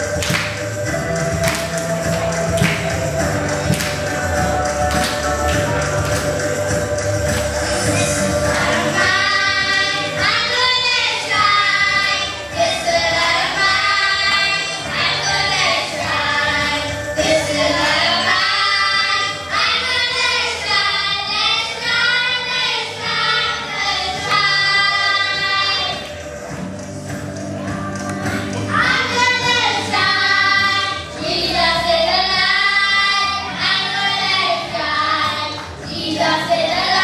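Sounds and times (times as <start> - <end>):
boys singing together: 1.1 - 26.0.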